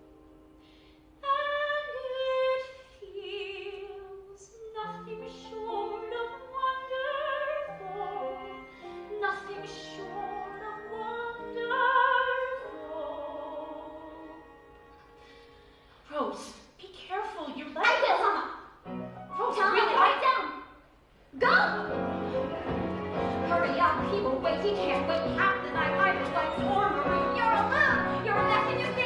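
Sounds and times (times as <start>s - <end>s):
woman singing with vibrato: 23.2s - 29.0s.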